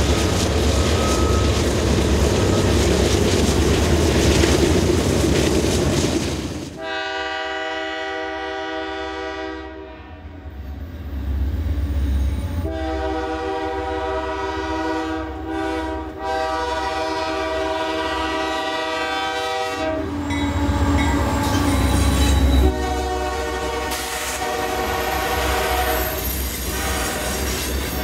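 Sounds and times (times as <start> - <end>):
locomotive engine rumble: 0.0 - 6.9
locomotive air horn blasts: 6.8 - 10.4, 12.5 - 21.6, 22.6 - 27.6.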